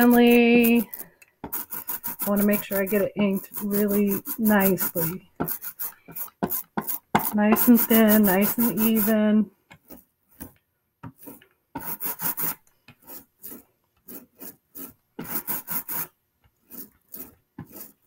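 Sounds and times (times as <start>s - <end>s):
ink roller rolling strokes: 0.0s - 10.5s, 11.1s - 18.0s.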